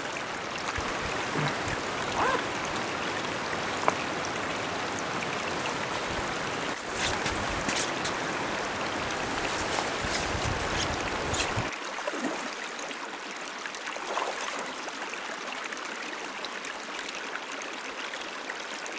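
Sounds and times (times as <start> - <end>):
river rushing over riffles: 0.0 - 12.5.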